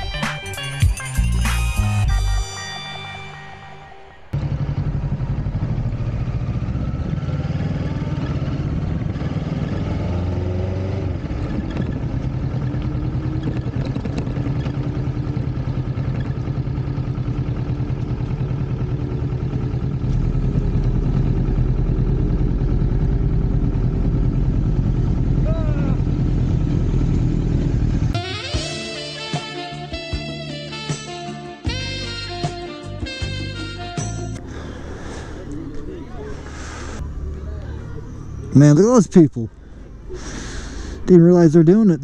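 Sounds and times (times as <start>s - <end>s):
motorcycle engine running: 4.2s - 30.9s, 31.7s - 38.8s.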